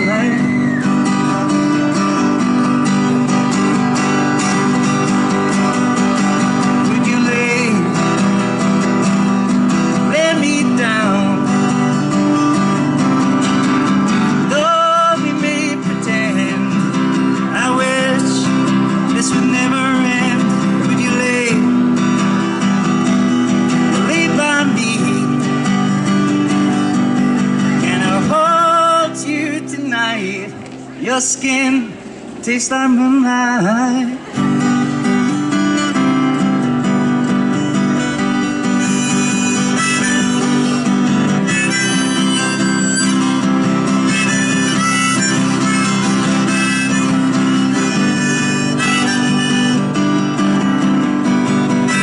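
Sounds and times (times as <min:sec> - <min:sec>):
acoustic guitar strumming: 0:00.0 - 0:52.0
harmonica playing: 0:37.9 - 0:52.0.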